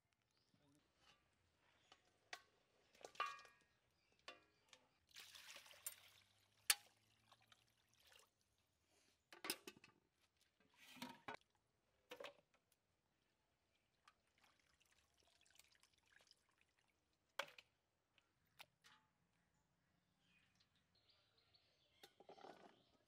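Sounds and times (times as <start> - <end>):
water splashing and trickling: 4.8 - 8.8, 13.6 - 18.9.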